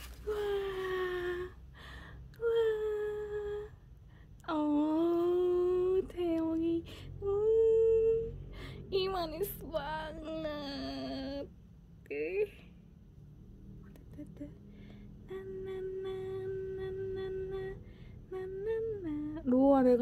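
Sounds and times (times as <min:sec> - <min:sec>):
woman humming: 0:00.0 - 0:01.6, 0:02.4 - 0:03.8, 0:04.5 - 0:08.4, 0:09.0 - 0:11.5, 0:12.1 - 0:12.7, 0:15.3 - 0:19.7.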